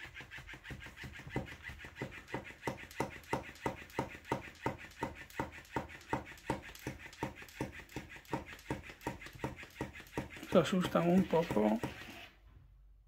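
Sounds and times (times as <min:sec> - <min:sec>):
toy fish tapping wooden table: 0:00.3 - 0:10.6.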